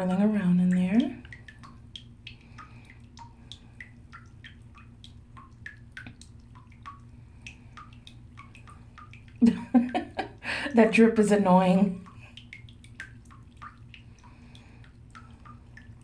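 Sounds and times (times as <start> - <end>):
faint steady hum: 0.0 - 16.0
faucet dripping into bath water: 0.0 - 16.0.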